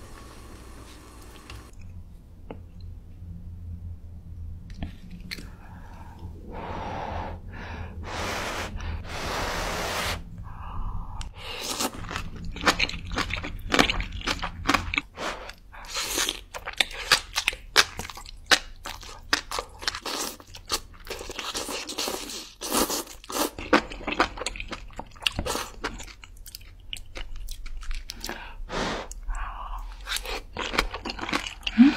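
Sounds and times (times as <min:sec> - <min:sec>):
person slurping noodles: 0:08.0 - 0:10.2.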